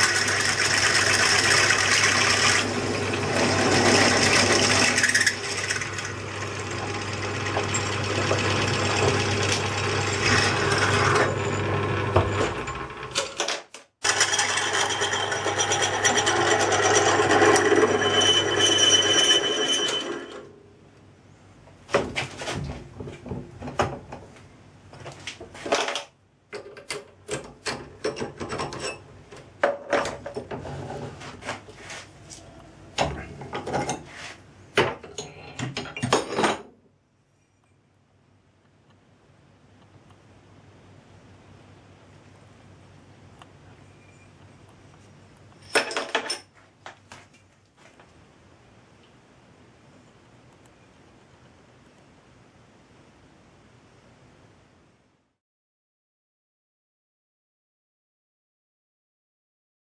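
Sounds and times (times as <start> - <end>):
harsh metal cutting noise: 0.0 - 13.1, 14.0 - 20.4
lathe motor hum: 0.0 - 13.1, 14.1 - 20.4.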